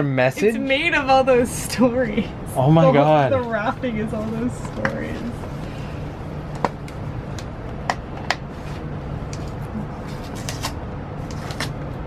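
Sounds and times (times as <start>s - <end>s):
low background hum: 0.0s - 12.0s
paper and tape tearing: 10.0s - 11.8s.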